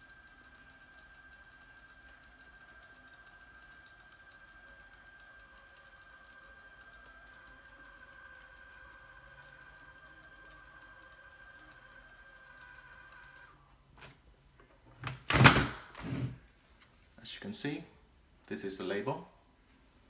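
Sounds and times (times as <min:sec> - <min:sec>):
label printer whine and ticking: 0:00.0 - 0:13.6.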